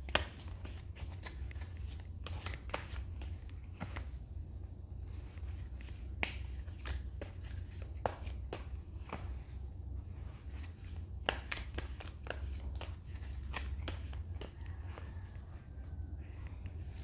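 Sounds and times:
cards shuffled and laid down: 0.0s - 4.2s, 5.4s - 9.4s, 10.4s - 15.2s
low steady hum: 0.0s - 17.0s.

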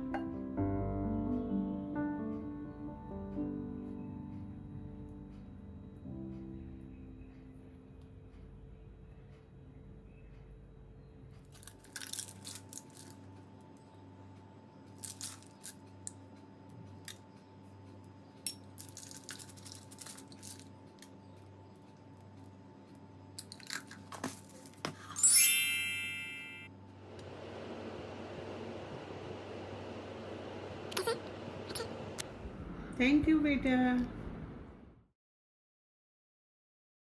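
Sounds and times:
chocolate chips clicking: 11.5s - 13.3s, 18.5s - 21.3s.

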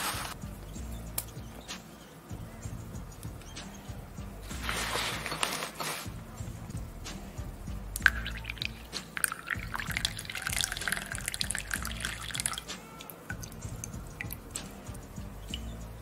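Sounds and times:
water poured into paper filter: 8.0s - 12.7s
water drips falling: 8.0s - 15.9s.

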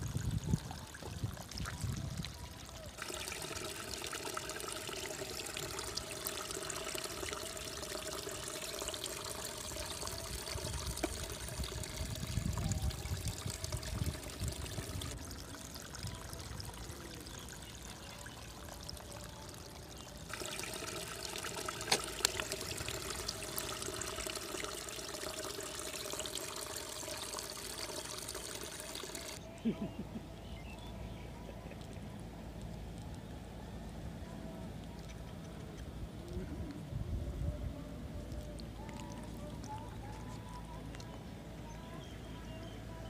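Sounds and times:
running water trickling: 0.0s - 29.4s.

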